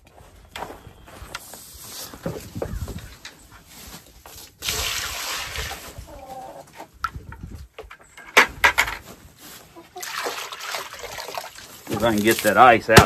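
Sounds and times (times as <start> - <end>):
water pouring and splashing: 4.3 - 6.6, 9.8 - 12.8
water sloshing in bucket: 4.3 - 6.6, 9.8 - 12.7
chicken calling: 6.0 - 7.0, 9.6 - 10.2.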